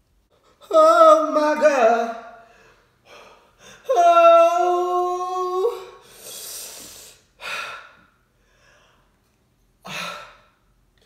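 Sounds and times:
man's long cry: 0:03.7 - 0:06.0.

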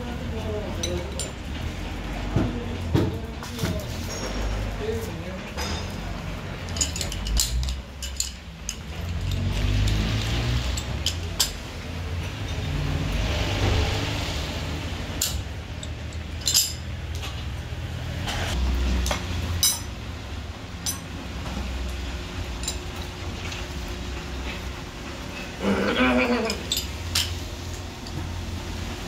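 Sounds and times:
metallic clinks of tools: 0:06.6 - 0:11.6, 0:15.2 - 0:17.4, 0:19.6 - 0:20.0, 0:20.8 - 0:21.2, 0:22.6 - 0:23.6, 0:26.3 - 0:27.4.

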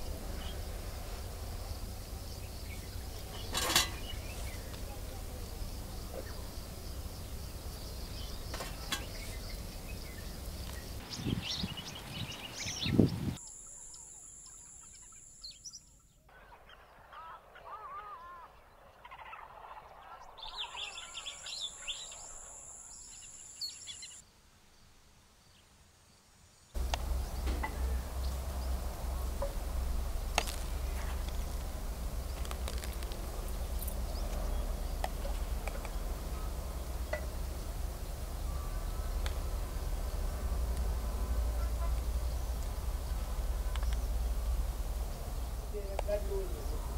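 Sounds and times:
low wind rumble: 0:00.0 - 0:13.4, 0:26.8 - 0:46.9
birds chirping and calling: 0:02.1 - 0:24.2.

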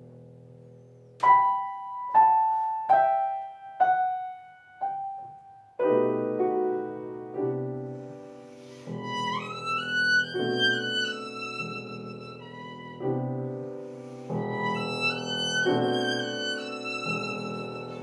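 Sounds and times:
grand piano playing: 0:01.2 - 0:18.0.

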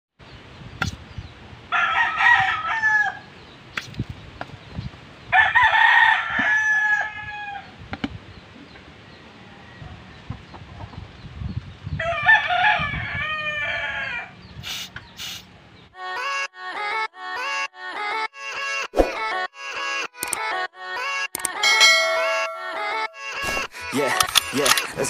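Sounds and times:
rooster crowing: 0:01.7 - 0:03.3, 0:05.3 - 0:07.7, 0:12.0 - 0:14.4.

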